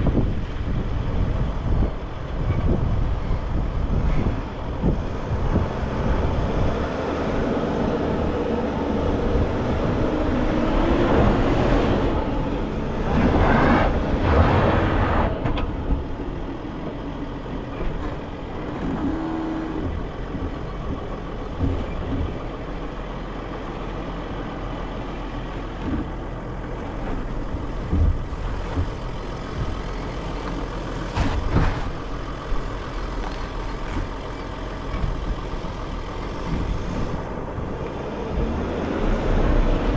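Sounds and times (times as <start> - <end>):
van engine: 0.0 - 39.9
thumps over bumps: 19.8 - 22.6, 26.9 - 32.2.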